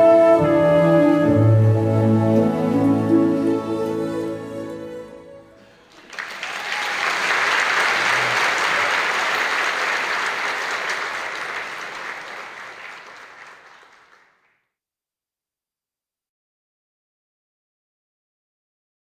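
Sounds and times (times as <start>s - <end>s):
audience applauding: 5.6s - 14.6s.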